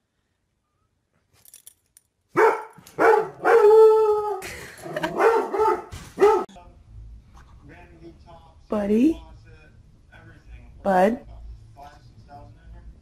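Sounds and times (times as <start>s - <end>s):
puppy barking yelps: 2.4s - 4.4s, 5.1s - 6.5s
puppy howling: 3.0s - 4.4s.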